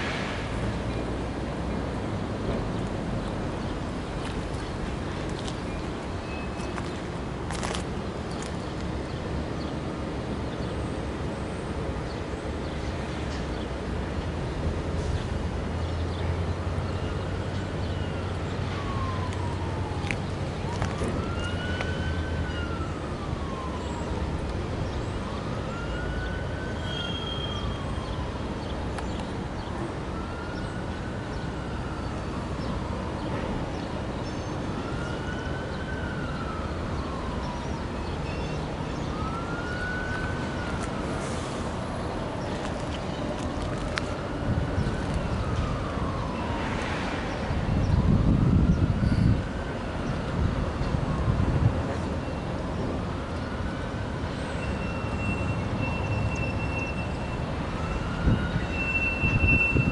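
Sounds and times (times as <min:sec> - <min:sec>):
emergency vehicle siren wailing: 0:16.3 - 0:59.9.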